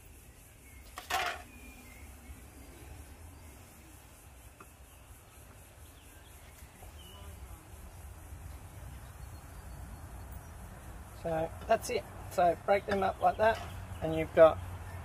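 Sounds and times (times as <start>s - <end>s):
insect chirring: 0.0s - 15.0s.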